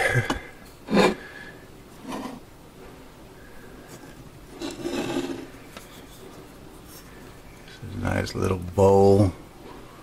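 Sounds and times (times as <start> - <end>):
clay bowl scraping on wooden desk: 2.0 - 2.4, 4.0 - 7.1
clay bowl rubbing in hand: 3.9 - 7.2.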